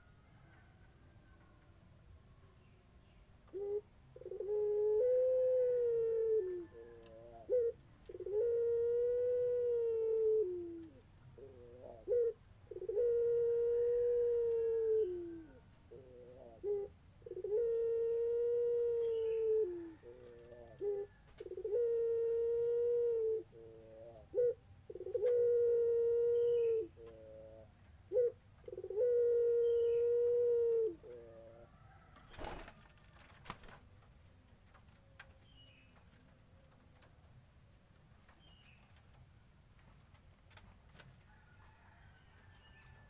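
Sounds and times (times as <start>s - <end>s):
dove cooing: 3.5s - 32.8s.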